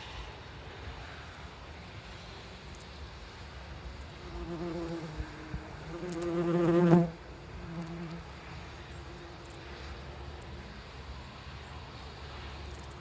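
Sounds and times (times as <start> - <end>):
wasp buzzing: 4.2 - 8.3.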